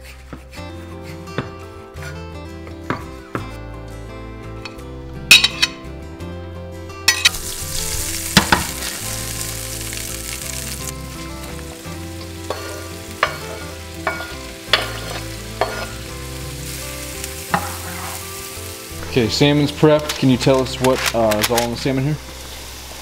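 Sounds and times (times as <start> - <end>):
board and knife knocking on pan: 2.9 - 3.5, 12.5 - 15.9
butter sizzling in a frying pan: 7.2 - 23.0.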